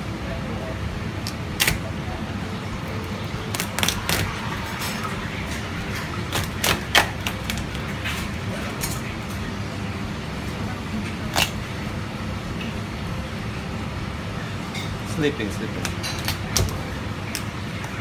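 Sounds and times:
steady low hum: 0.0 - 18.0
knife cracking lobster shell: 1.2 - 1.8, 3.5 - 4.3, 6.3 - 7.7, 11.3 - 11.6.

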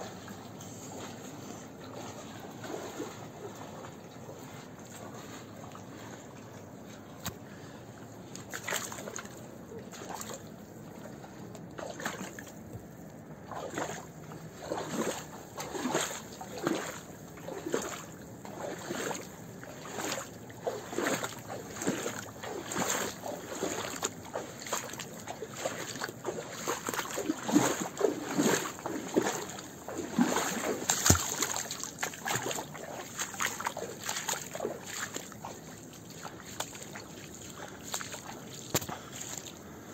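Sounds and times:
hiker footsteps: 19.8 - 39.6.

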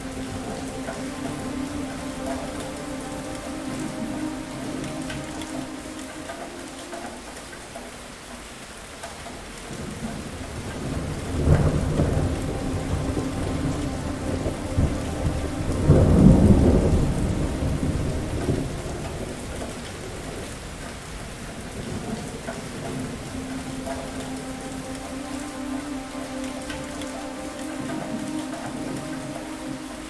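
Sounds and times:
heavy rain: 0.0 - 30.0
thunder rumbling: 9.7 - 30.0.

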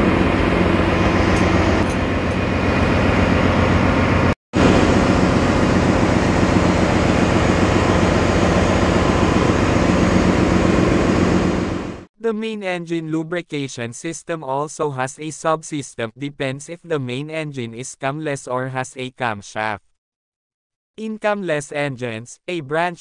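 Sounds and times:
low hum: 0.0 - 12.0
engine room machinery drone: 0.0 - 12.1.

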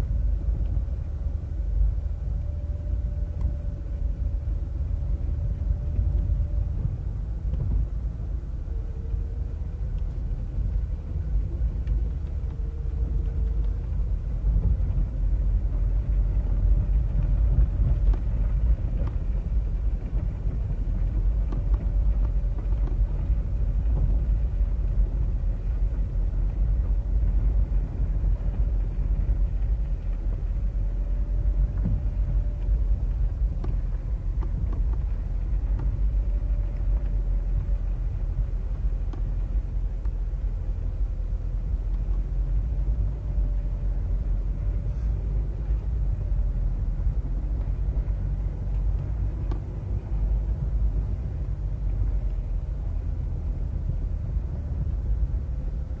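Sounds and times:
car tyres and engine rumble: 0.0 - 56.0.

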